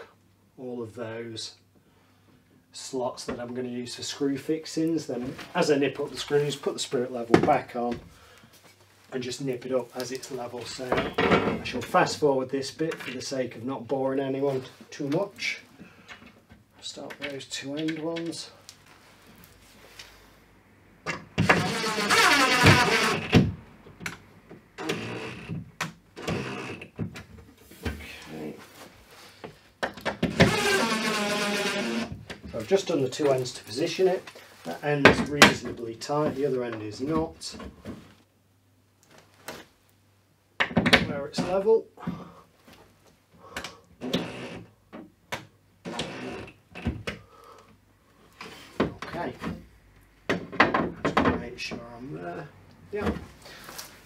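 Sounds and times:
electric drill driving screws: 21.4s - 23.4s, 30.3s - 32.1s, 44.0s - 44.6s.

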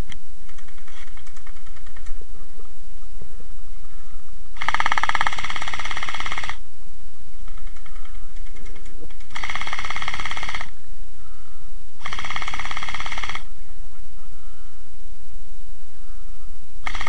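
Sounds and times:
gel blaster buzzing rattle: 0.0s - 2.2s, 4.6s - 6.6s, 7.5s - 10.8s, 12.0s - 13.5s.

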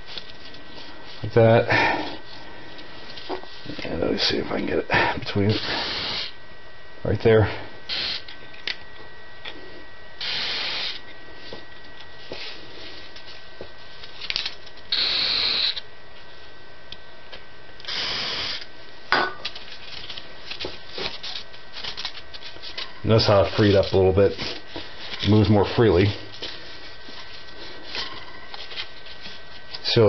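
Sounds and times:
aerosol can hissing: 5.6s - 6.4s, 7.9s - 8.2s, 10.2s - 11.0s, 14.9s - 15.8s, 17.9s - 18.6s.

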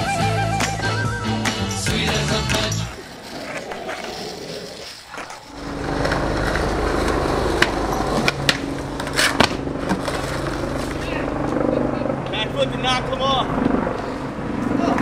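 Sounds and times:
skateboard wheels rolling on concrete: 0.0s - 11.8s
skateboard clacking on a ledge: 6.0s - 10.2s.

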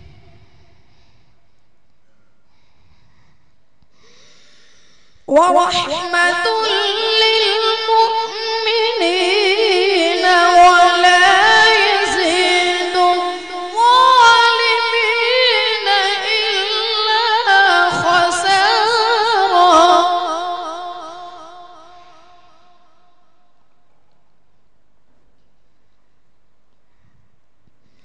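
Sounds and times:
boy reciting melodically: 5.3s - 22.8s.

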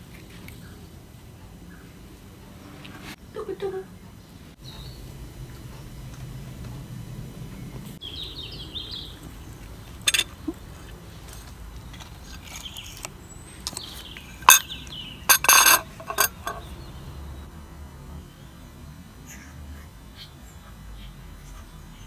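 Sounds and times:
birds chirping faintly: 7.0s - 17.5s
spoon clinking on plate: 10.1s - 10.3s, 15.3s - 16.7s
spoon scraping plate: 10.1s - 10.3s, 15.3s - 16.7s.

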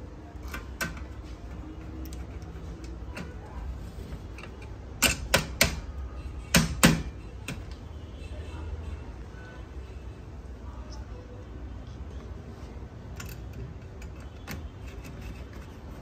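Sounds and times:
screwdriver and parts clicking on metal: 0.3s - 3.5s, 4.3s - 5.9s, 13.1s - 16.0s.

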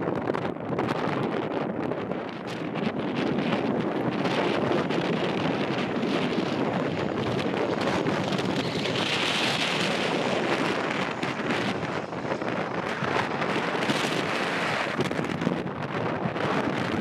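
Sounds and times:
wind buffeting microphone: 0.0s - 17.0s
turboprop aircraft approaching: 2.0s - 17.0s
aircraft hiss: 5.2s - 15.2s.

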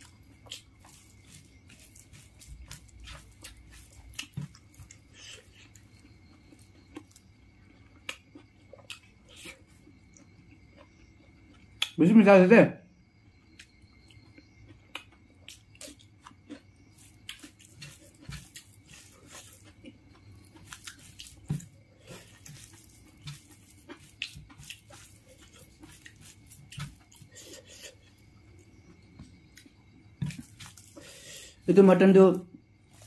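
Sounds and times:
fingers mixing rice: 0.0s - 5.8s, 17.0s - 27.8s
person chewing: 0.0s - 12.0s, 13.3s - 31.7s.

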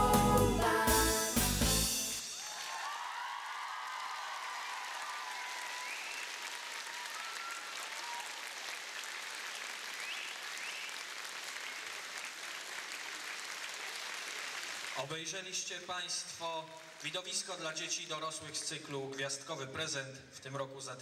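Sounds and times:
audience applauding: 2.2s - 15.1s.

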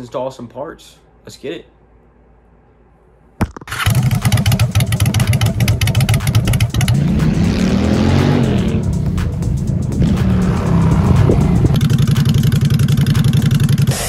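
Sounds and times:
motorcycle engine revving: 3.7s - 14.0s.

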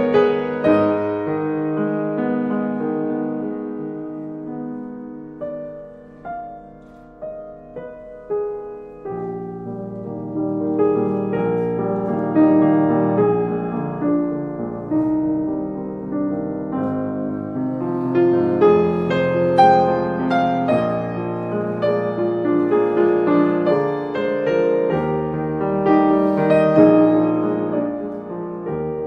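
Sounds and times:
slow piano music: 0.0s - 29.0s.

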